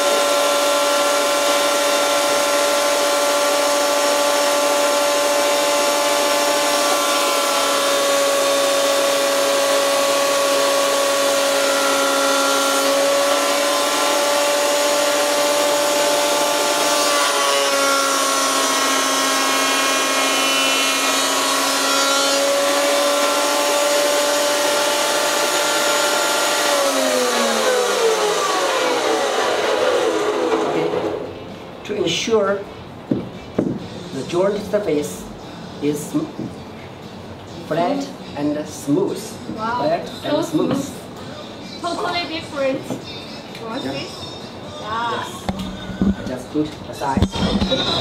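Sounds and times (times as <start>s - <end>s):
electric planer running: 0.0s - 31.4s
planer cutter head spinning down: 0.0s - 31.4s.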